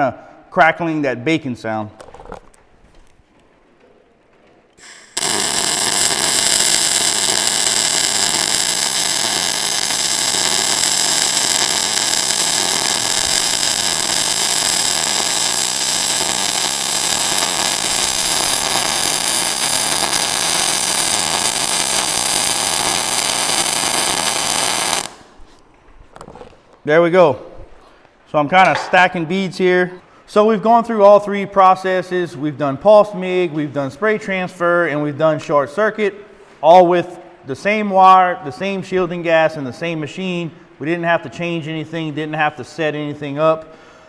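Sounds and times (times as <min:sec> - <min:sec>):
welding arc crackling: 0:04.8 - 0:25.4.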